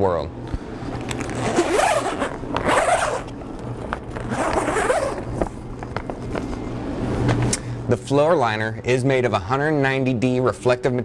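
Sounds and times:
heavy zipper being unzipped: 1.2s - 3.4s, 4.2s - 5.4s.

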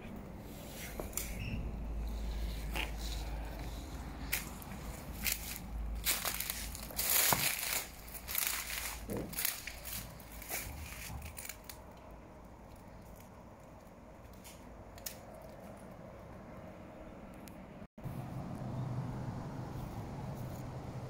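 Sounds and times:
footsteps crunching on debris: 4.4s - 11.6s.

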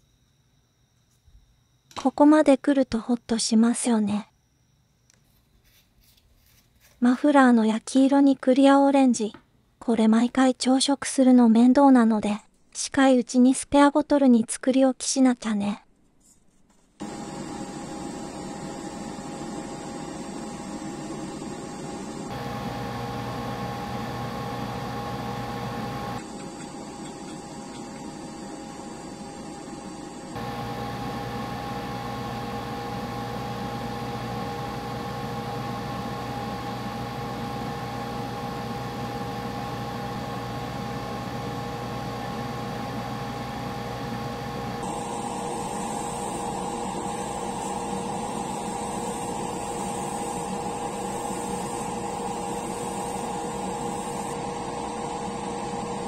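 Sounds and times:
compressor and fan humming: 17.0s - 56.0s.

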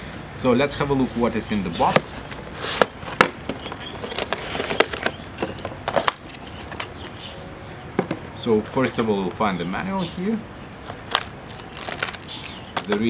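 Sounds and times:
packaging being handled: 2.7s - 7.2s, 10.9s - 13.0s
plastic tray rattling: 3.2s - 6.9s, 11.0s - 13.0s.

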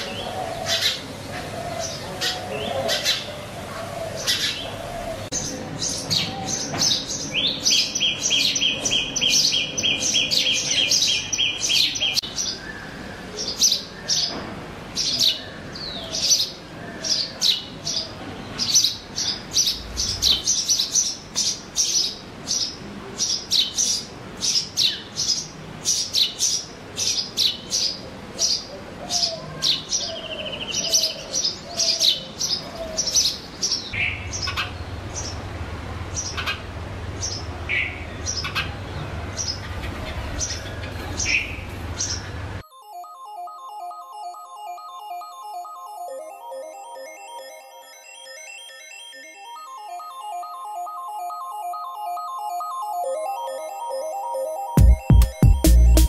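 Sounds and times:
sparrows chirping: 0.0s - 42.6s.

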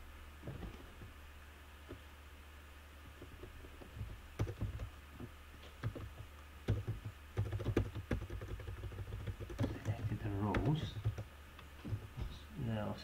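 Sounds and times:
typing on computer keyboard: 4.4s - 4.9s, 5.8s - 11.3s.

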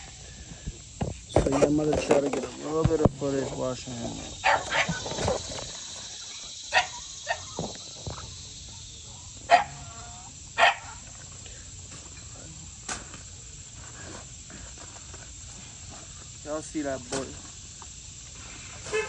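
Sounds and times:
puppy barking: 4.4s - 5.0s, 6.7s - 7.6s, 8.7s - 9.9s, 10.6s - 11.0s.

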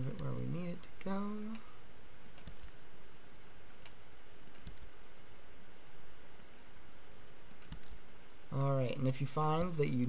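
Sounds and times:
computer mouse clicks: 2.2s - 2.8s, 3.7s - 4.9s, 6.4s - 6.7s, 7.5s - 8.0s.

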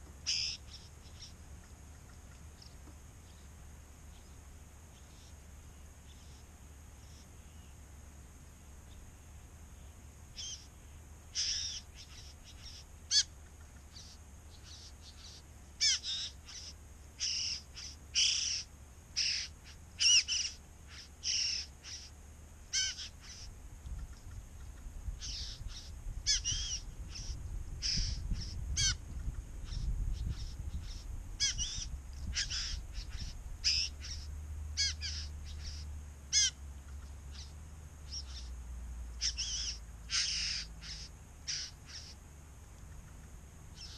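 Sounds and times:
bird making sharp calls: 0.2s - 1.3s, 11.4s - 13.4s, 14.0s - 22.1s, 22.7s - 23.5s, 25.2s - 29.0s, 29.7s - 37.5s, 39.2s - 42.2s.

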